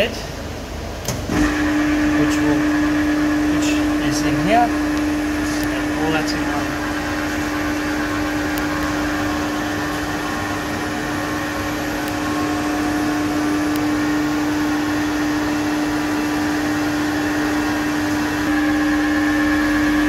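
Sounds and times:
electric motor and pump humming: 0.0 - 20.0
higher whine: 0.0 - 20.0.

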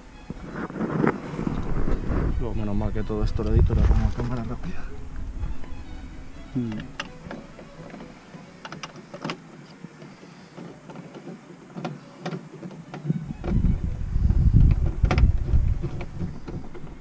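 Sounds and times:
rough rumbling noise: 0.0 - 8.4, 13.1 - 17.0
plastic and tools clicking: 6.6 - 17.0.

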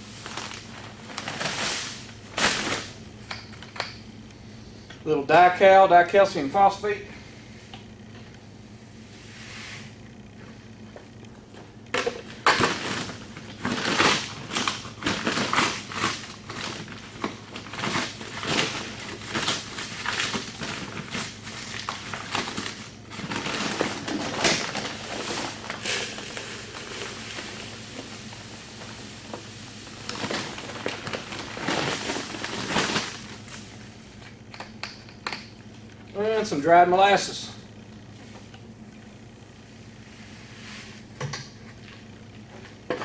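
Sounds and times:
paper sack rustling: 0.0 - 3.0, 12.2 - 33.7
powder scooped with plastic bucket: 24.8 - 32.7.

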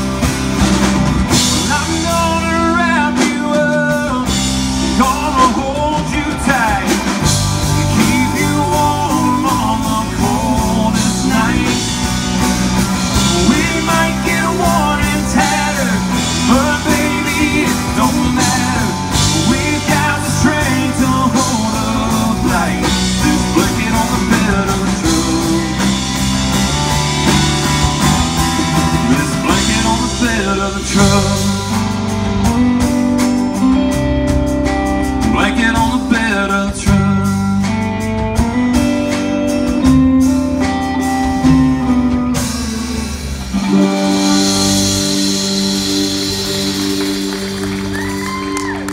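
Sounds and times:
acoustic guitar: 0.0 - 48.9
drum kit: 0.0 - 48.9
electric bass: 0.0 - 48.9
male singer: 1.5 - 26.3, 28.8 - 32.2, 35.0 - 37.8.

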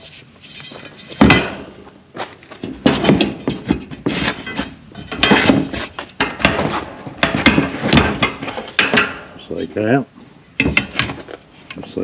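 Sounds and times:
steel bars clanking and rattling: 0.0 - 1.8, 2.6 - 9.5, 10.6 - 11.3.

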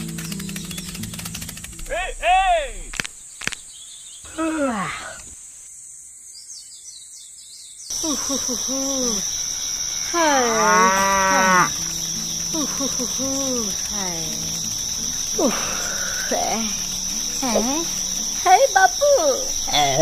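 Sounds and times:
crickets chirring: 0.0 - 20.0
cows mooing: 10.1 - 12.0.

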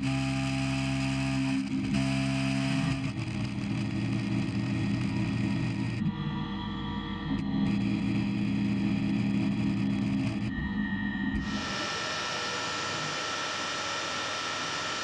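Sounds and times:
milling machine cutting metal: 11.4 - 15.0.

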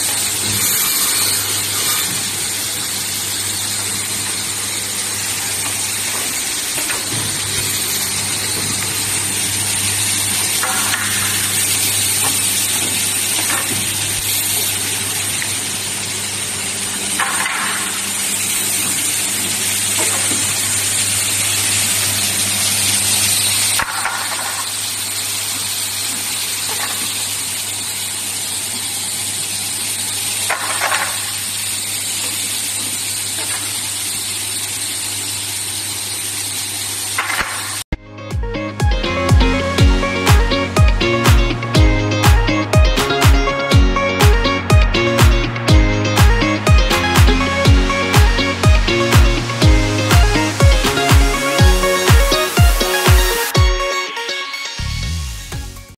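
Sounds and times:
pneumatic cylinder bursts: 0.0 - 2.2
machine motor hum: 38.8 - 53.6.

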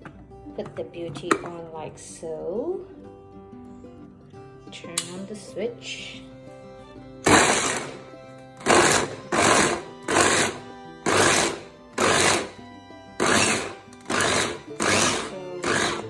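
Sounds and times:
electric chopper motor whirring: 7.2 - 8.0, 8.6 - 12.5, 13.2 - 16.0.

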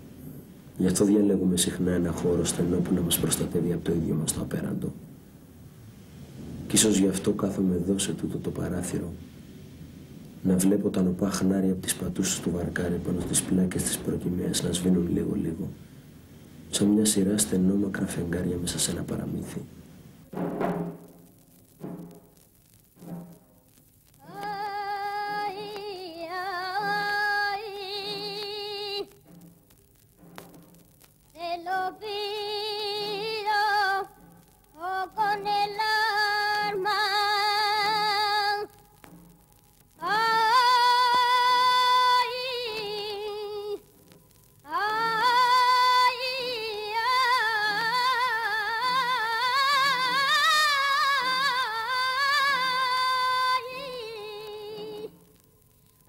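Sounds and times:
soft low beat: 20.3 - 22.4
wordless high voice singing: 24.2 - 29.2, 31.4 - 34.1, 34.7 - 38.8, 40.0 - 43.8, 44.6 - 55.2.

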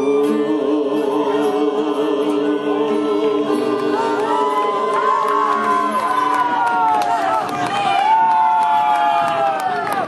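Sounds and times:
people singing: 0.0 - 6.6
accordion and guitars: 0.0 - 7.4
crowd cheering: 0.0 - 10.0.

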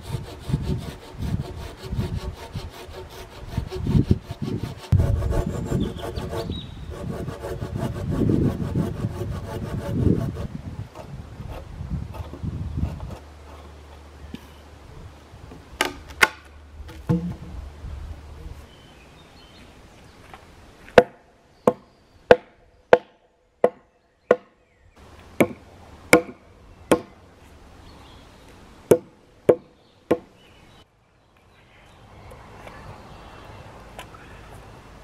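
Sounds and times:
axe striking wood: 15.8 - 17.5, 21.0 - 24.5, 25.4 - 27.1, 28.9 - 30.3.

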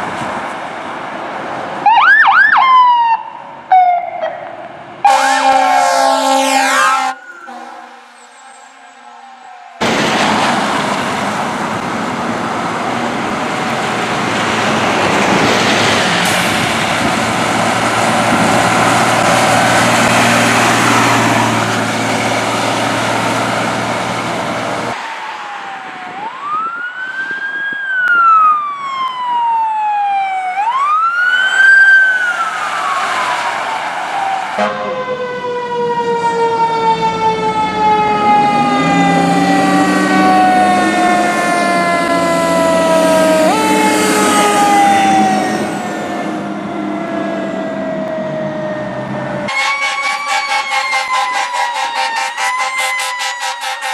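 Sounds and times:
fire truck passing close: 0.0 - 53.9
siren wailing up and down: 1.8 - 9.8, 24.8 - 53.9
siren tones sliding downward: 1.8 - 10.0, 24.4 - 53.9.

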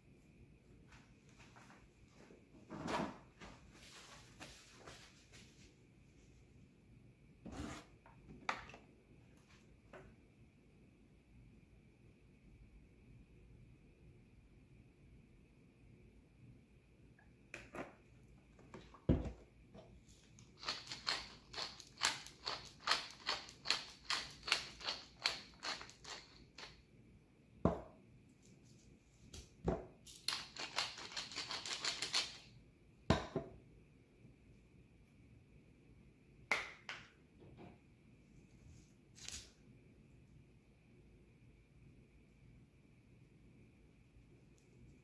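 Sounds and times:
pepper mill grinding: 20.3 - 26.8, 30.1 - 32.5.

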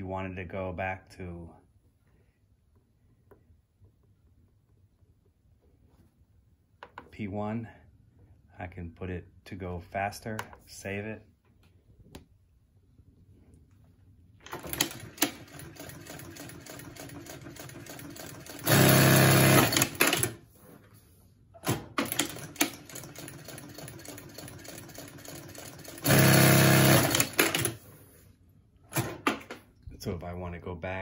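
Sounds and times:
sewing machine stitching fabric: 14.4 - 20.4, 21.6 - 27.9.

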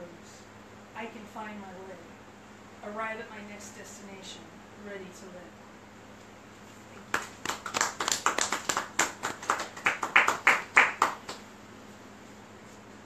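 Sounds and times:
small audience applauding: 7.0 - 11.5.

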